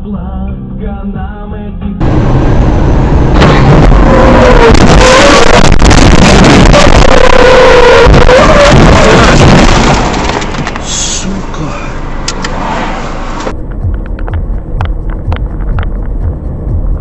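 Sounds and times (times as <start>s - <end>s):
road and wind noise in car: 1.6s - 17.0s.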